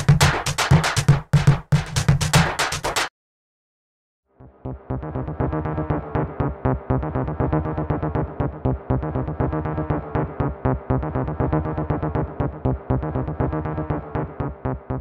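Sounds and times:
electronic dance music: 0.0 - 3.1.

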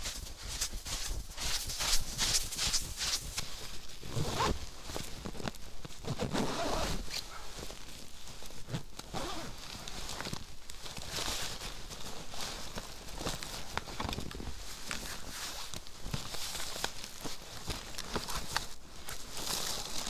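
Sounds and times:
fabric bag rustling and scraping: 0.0 - 20.0
footsteps crunching in snow: 0.0 - 20.0.

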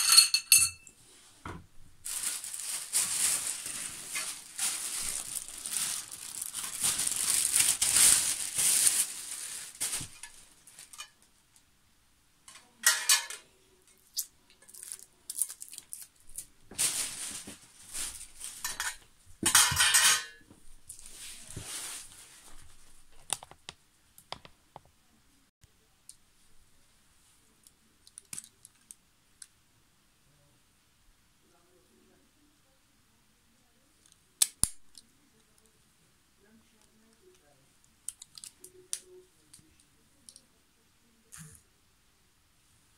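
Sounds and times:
metal tubes knocking and clinking: 0.0 - 0.9
packaging rustling and crinkling: 2.0 - 11.1, 14.7 - 19.0, 20.8 - 23.6.

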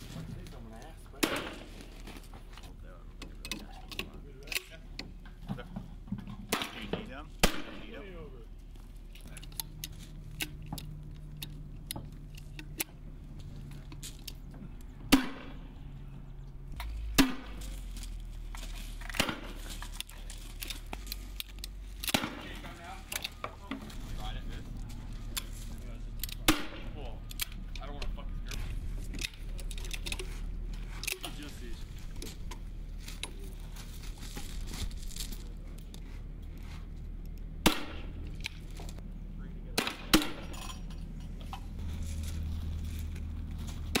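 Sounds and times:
loud sharp gunshot: 6.5 - 7.9, 15.1 - 15.6
gear rustling and clicking: 8.6 - 15.0, 16.4 - 37.5, 40.6 - 44.0.

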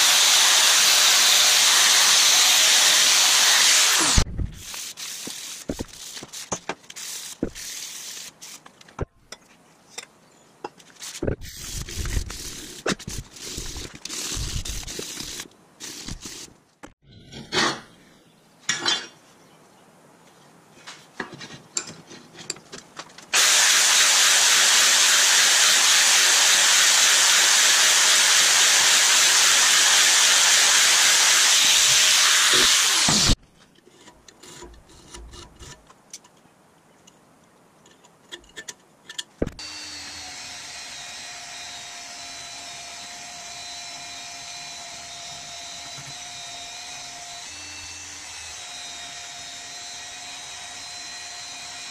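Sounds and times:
belt grinder running: 0.0 - 4.2, 23.4 - 33.4
angle grinder cutting steel: 0.0 - 8.6, 23.4 - 33.4, 39.6 - 51.9.

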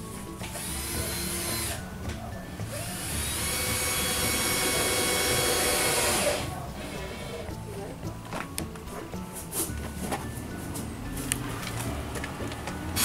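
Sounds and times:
power tool running on wood: 0.5 - 1.8, 2.6 - 7.5.

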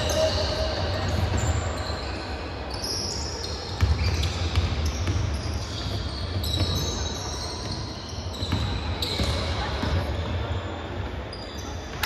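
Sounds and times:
shoes squeaking on floor: 0.0 - 12.0
basketball bouncing: 3.8 - 6.9, 8.4 - 9.4.

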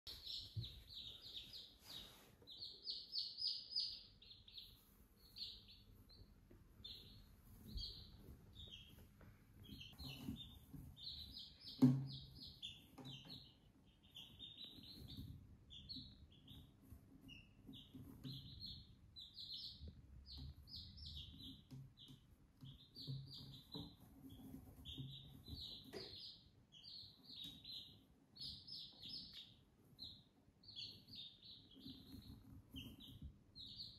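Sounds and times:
chicks peeping: 0.0 - 33.9.

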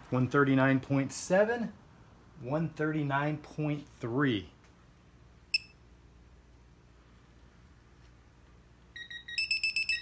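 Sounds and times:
short high beep: 5.5 - 5.8.

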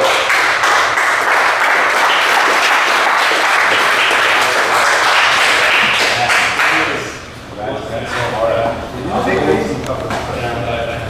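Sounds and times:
people applauding: 0.0 - 7.2.

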